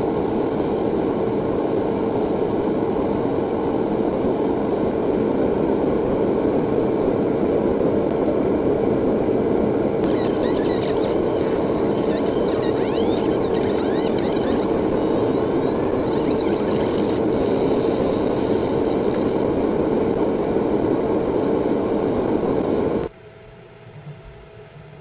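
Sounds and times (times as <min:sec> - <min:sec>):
laser engraver rushing hiss: 0:10.0 - 0:23.1.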